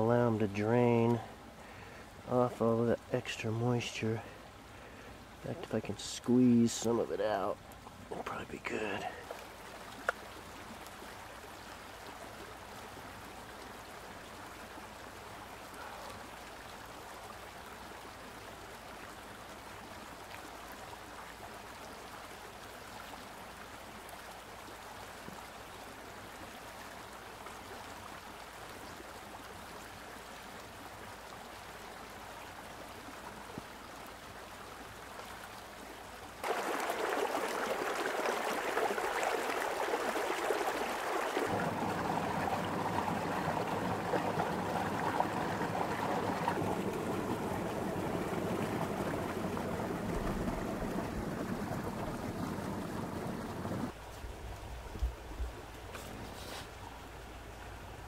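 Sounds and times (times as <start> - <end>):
steady hiss: 0.0 - 9.2.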